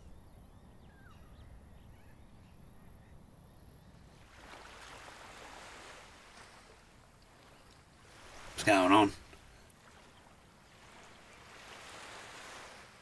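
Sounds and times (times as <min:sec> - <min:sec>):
soft rush of surf: 0:04.2 - 0:13.0.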